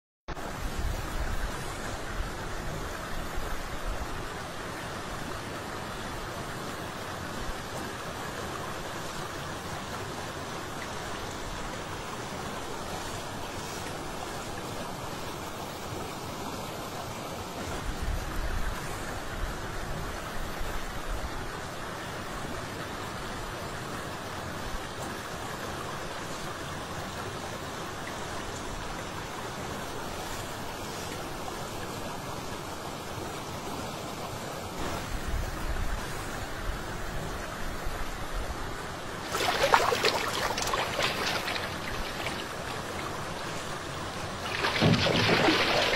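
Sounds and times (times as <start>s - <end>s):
rushing ambient noise by water: 0.3s - 45.9s
low rumbling bumps: 44.4s - 45.9s.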